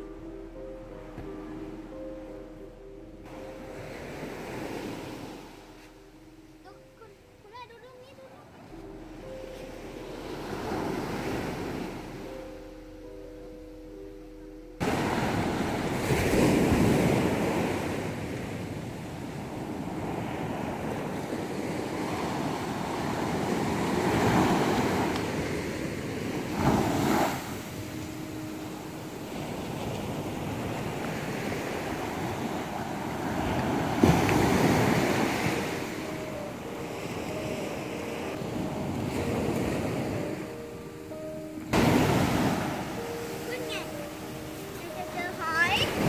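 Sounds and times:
small waves breaking on beach: 14.8s - 46.0s.

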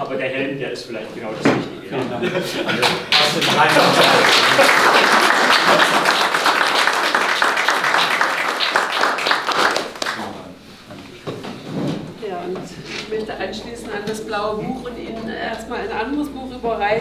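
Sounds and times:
group applauding: 2.6s - 10.5s.

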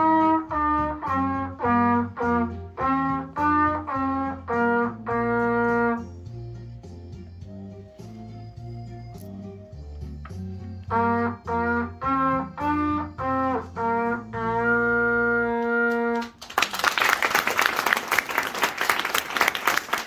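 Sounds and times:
trumpet playing short notes: 0.0s - 6.3s, 10.8s - 16.4s
low accompaniment: 0.0s - 16.4s
audience applause: 16.2s - 20.0s.

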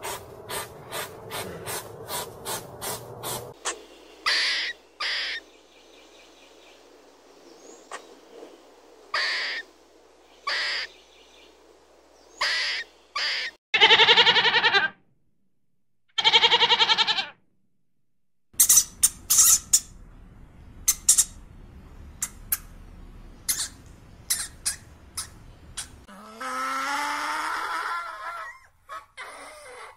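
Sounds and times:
squirrel calls: 3.2s - 5.5s, 9.1s - 9.7s, 10.4s - 11.0s, 12.4s - 14.3s, 18.6s - 20.0s, 20.9s - 21.4s, 23.4s - 26.1s
goat bleating: 13.8s - 14.9s, 16.2s - 17.4s
hamster squeaking: 18.6s - 19.9s.

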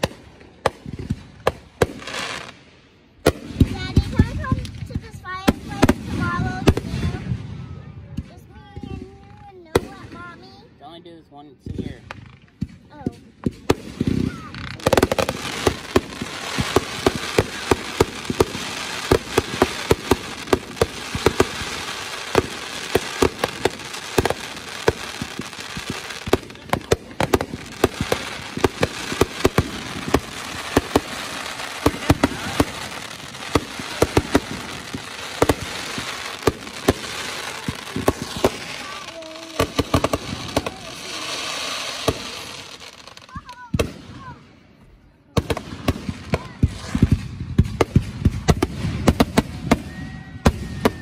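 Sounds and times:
fireworks bursting: 0.0s - 10.8s, 11.6s - 51.0s
fireworks hiss: 13.0s - 44.2s.

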